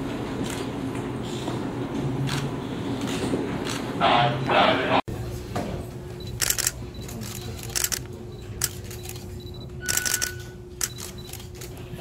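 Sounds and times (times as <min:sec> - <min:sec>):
camera shutters clicking: 0:06.4 - 0:09.2, 0:09.9 - 0:11.7.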